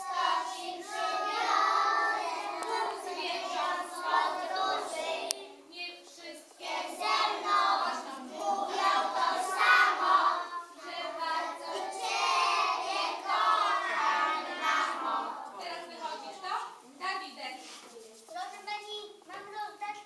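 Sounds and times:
young children singing: 0:00.0 - 0:05.6, 0:06.3 - 0:15.6.

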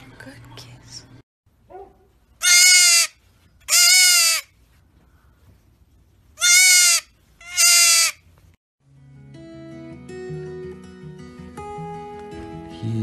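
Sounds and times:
baby goat bleating: 0:02.4 - 0:04.5, 0:06.4 - 0:08.2.

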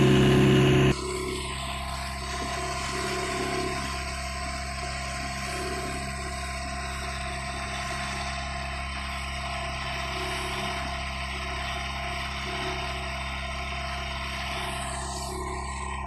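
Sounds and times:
boat diesel engine running: 0:00.0 - 0:16.0.

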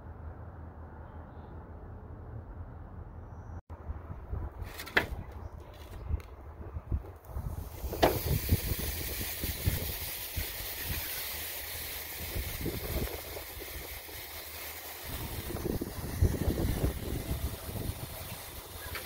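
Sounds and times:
wind rumble on microphone: 0:03.7 - 0:11.1, 0:12.1 - 0:14.2, 0:15.0 - 0:19.0
meat sizzling on grill: 0:07.7 - 0:19.0.

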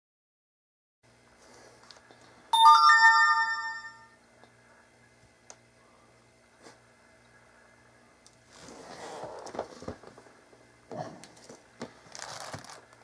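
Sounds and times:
rising electronic notification chime: 0:02.6 - 0:04.1.

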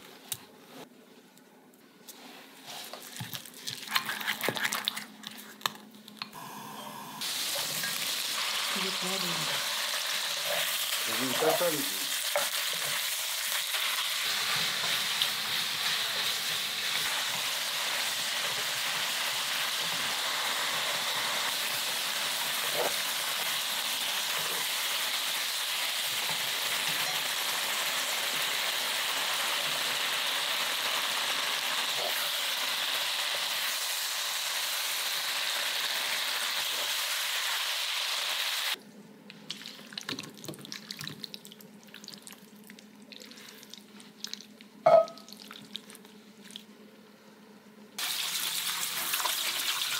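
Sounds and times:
pork sizzling in a pan: 0:06.4 - 0:38.8, 0:48.0 - 0:49.9.

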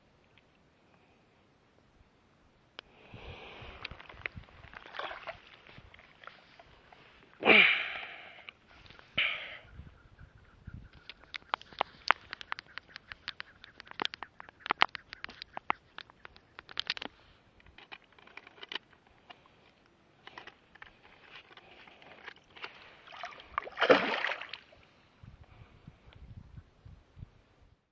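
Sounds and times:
water splashing: 0:04.6 - 0:06.7, 0:22.8 - 0:24.8.

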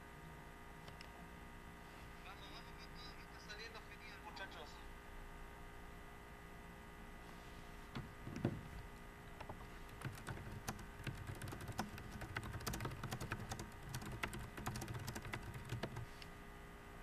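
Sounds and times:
faint steady hum: 0:00.0 - 0:17.0
computer keyboard key clicks: 0:09.4 - 0:16.1.

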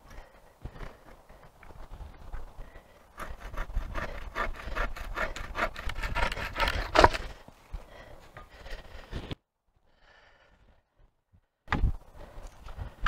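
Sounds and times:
hand saw cutting branch: 0:03.2 - 0:07.4
wood cracking: 0:03.2 - 0:07.4.

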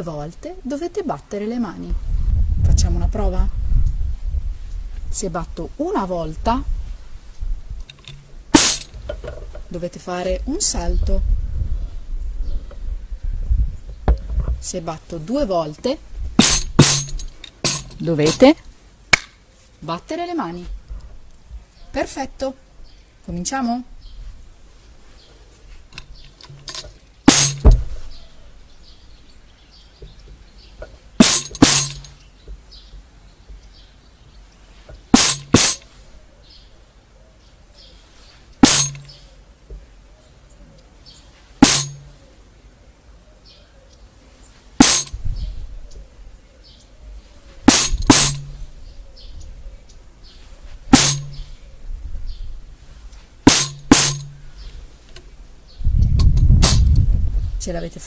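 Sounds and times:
tambourine strikes: 0:08.6 - 0:08.9, 0:16.4 - 0:18.0, 0:26.7 - 0:27.8, 0:31.2 - 0:32.1, 0:35.1 - 0:35.9, 0:38.6 - 0:39.1, 0:41.6 - 0:42.1, 0:44.8 - 0:45.2, 0:47.7 - 0:48.6, 0:50.9 - 0:51.4, 0:53.5 - 0:54.4, 0:56.6 - 0:56.9.

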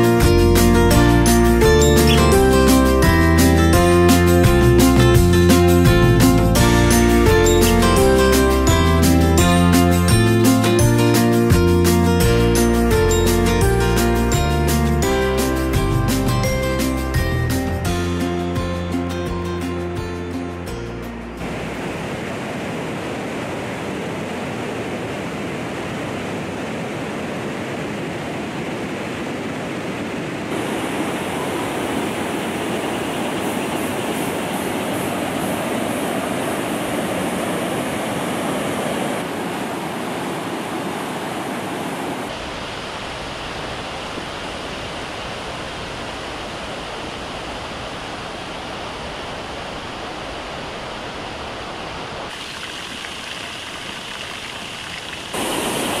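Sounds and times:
whitewater river rushing: 0:21.4 - 0:56.0.

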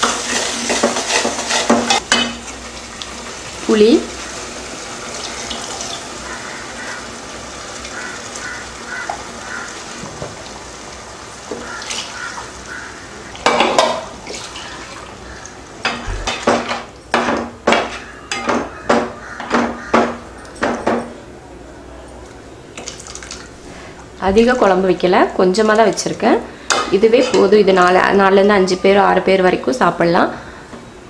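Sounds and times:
spoon stirring in metal pot: 0:00.0 - 0:02.3
spoon knocking against pot: 0:15.8 - 0:21.1.

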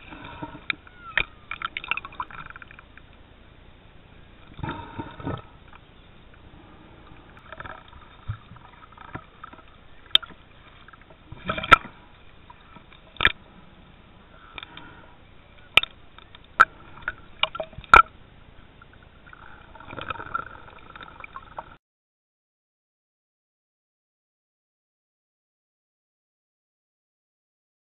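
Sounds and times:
muffled underwater sloshing: 0:00.0 - 0:21.8.

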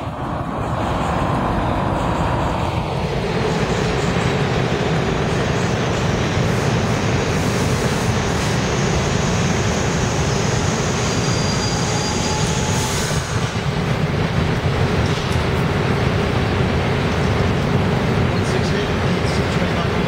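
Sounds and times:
subway train braking: 0:00.0 - 0:20.0
train low steady rumble: 0:00.0 - 0:20.0.

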